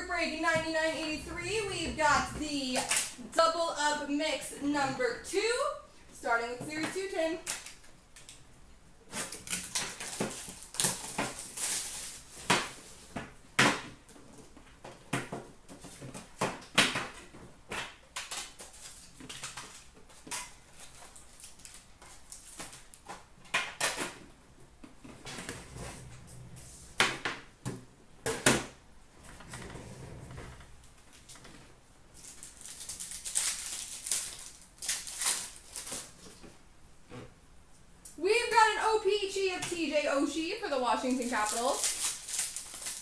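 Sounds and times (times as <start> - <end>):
foil wrappers crinkling: 9.1 - 12.9, 18.2 - 23.1, 32.1 - 36.4, 40.9 - 43.0.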